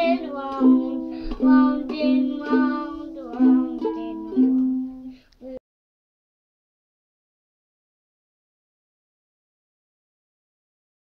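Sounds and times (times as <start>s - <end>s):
ukulele strumming: 0.0s - 5.1s
person singing: 0.0s - 5.6s.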